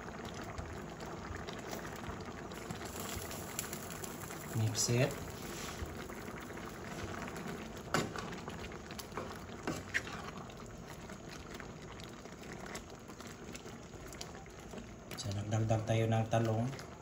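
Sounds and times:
stew simmering and bubbling: 0.0s - 17.0s
wooden spatula stirring: 9.0s - 11.0s.

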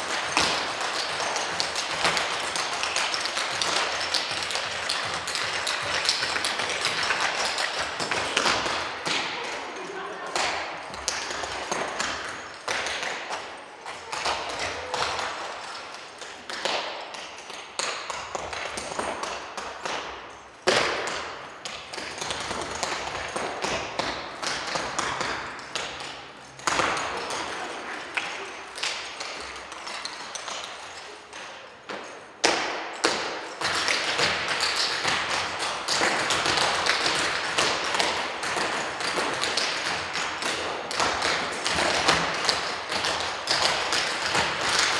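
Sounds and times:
shoes tapping on wooden stage: 0.0s - 9.6s.

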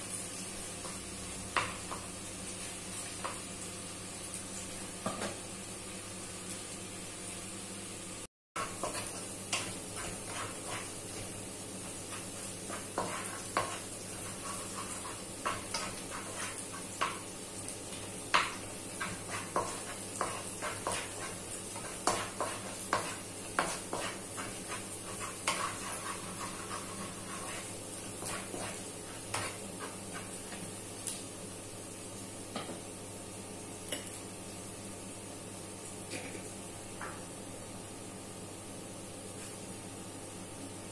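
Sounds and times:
garlic sizzling in butter: 0.0s - 7.1s, 8.6s - 33.0s
wooden spatula scraping a pan: 8.6s - 17.2s, 18.4s - 30.7s.

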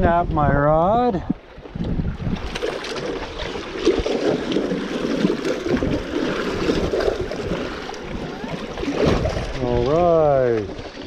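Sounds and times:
wind buffeting microphone: 0.0s - 10.8s
water lapping among rocks: 1.1s - 11.0s.

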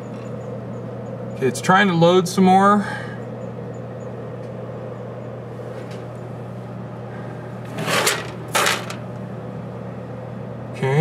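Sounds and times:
pellet stove blower hum: 0.0s - 11.0s
scraping rustle: 7.7s - 9.1s.

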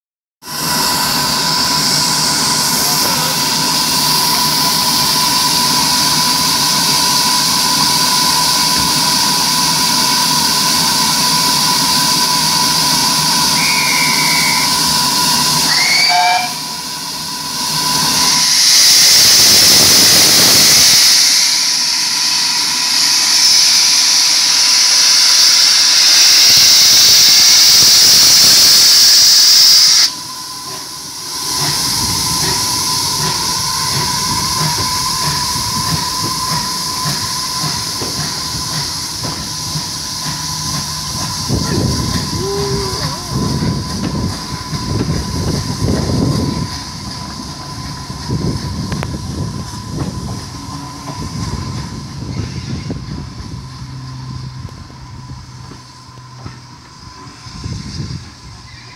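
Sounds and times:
steam locomotive hissing: 0.4s - 58.9s
high train whistle: 11.3s - 17.1s, 18.2s - 22.4s, 23.0s - 30.4s, 41.4s - 45.0s.

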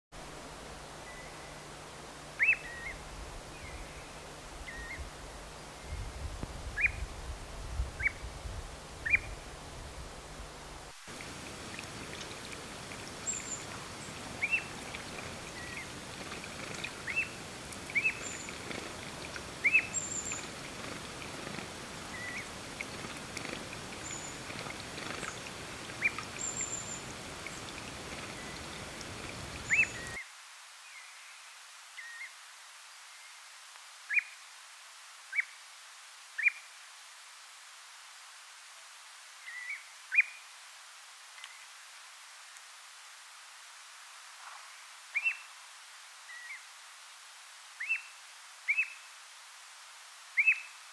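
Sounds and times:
background hiss: 0.1s - 50.9s
plover whistled calls: 2.4s - 3.0s, 13.1s - 30.2s.

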